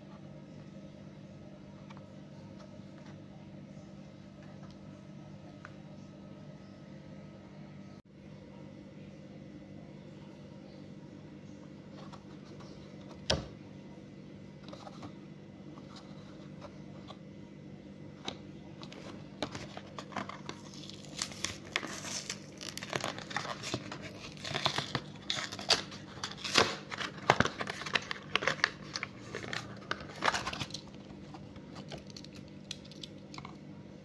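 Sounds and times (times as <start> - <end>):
plastic blister pack being torn open: 19.4 - 31.1, 31.8 - 33.5.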